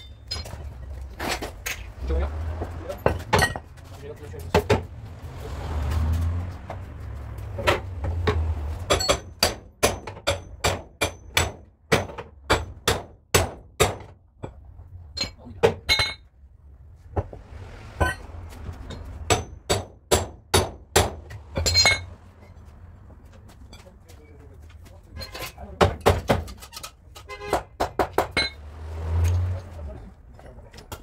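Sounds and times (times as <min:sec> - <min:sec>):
hammer striking sheet steel: 0:08.9 - 0:14.1, 0:18.0 - 0:22.0.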